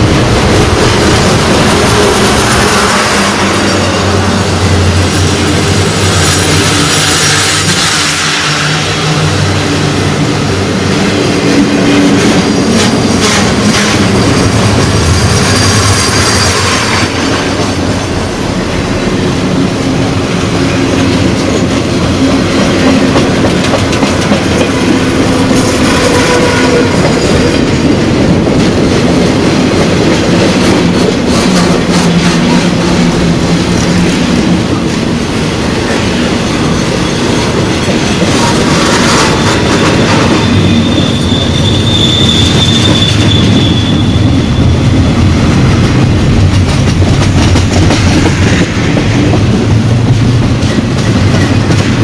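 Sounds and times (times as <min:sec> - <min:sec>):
steel wheels rumbling on rail: 0:00.0 - 0:52.0.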